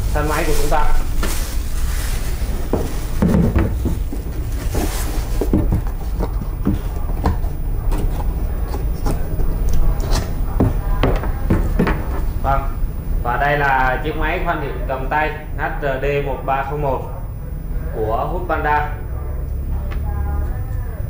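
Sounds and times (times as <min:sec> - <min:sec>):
plastic bag rustling: 0:00.0 - 0:07.5
steady low hum: 0:00.0 - 0:21.0
cardboard box being folded: 0:00.3 - 0:09.0.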